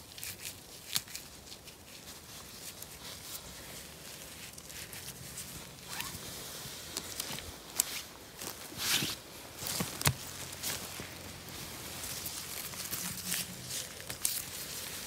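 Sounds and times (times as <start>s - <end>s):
twigs crackling and snapping: 0.0s - 3.4s, 6.8s - 15.0s
footsteps on forest floor: 9.5s - 15.0s.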